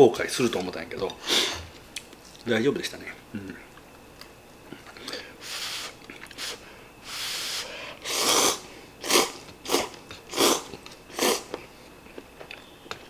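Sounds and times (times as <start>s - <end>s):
person slurping noodles: 7.1s - 11.5s.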